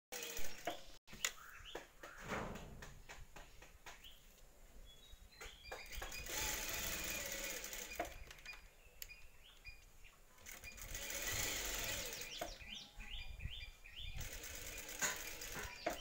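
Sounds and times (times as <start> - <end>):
sewing machine stitching: 0.1 - 0.9, 5.9 - 8.2, 10.4 - 12.6, 14.2 - 16.0.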